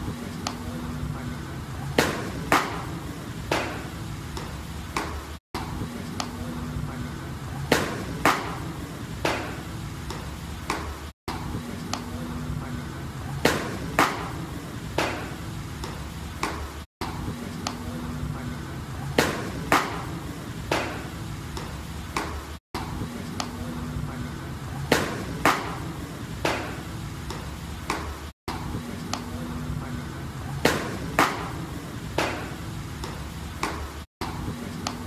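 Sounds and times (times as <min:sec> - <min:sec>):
balls smacking into a mitt: 0:02.0 - 0:05.2, 0:07.7 - 0:11.0, 0:13.4 - 0:14.4, 0:15.0 - 0:17.8, 0:19.2 - 0:22.4, 0:24.9 - 0:28.2, 0:30.6 - 0:31.6, 0:32.2 - 0:35.0.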